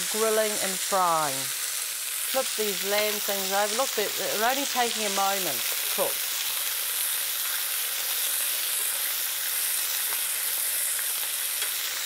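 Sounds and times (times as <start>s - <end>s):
meat and cheese sizzling on grill: 0.0s - 12.0s.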